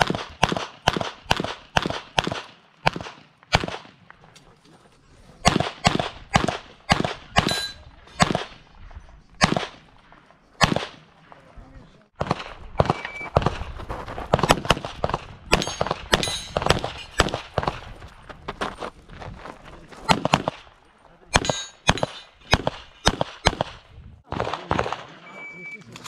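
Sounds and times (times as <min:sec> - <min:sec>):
pistol shots with echo: 0:00.0 - 0:04.1, 0:05.4 - 0:08.7, 0:09.4 - 0:11.4, 0:12.1 - 0:13.7, 0:14.3 - 0:17.9, 0:20.1 - 0:25.4.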